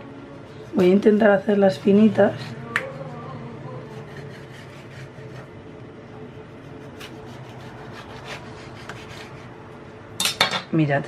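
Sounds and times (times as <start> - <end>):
steady low hum: 0.0 - 11.0
knife sawing through tomato: 0.7 - 2.6, 3.7 - 5.6, 6.5 - 9.6.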